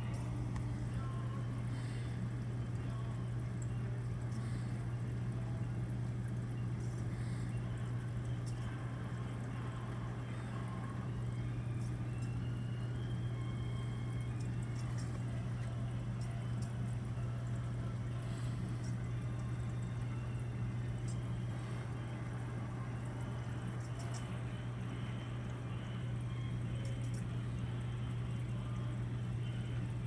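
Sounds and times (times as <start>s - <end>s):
faint running water: 0.0s - 30.0s
steady low hum: 0.0s - 30.0s
faint ticks: 23.8s - 24.4s.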